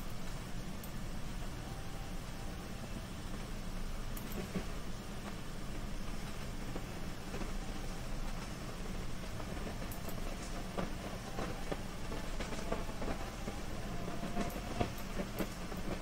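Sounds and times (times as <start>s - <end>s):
low background hum: 0.0s - 16.0s.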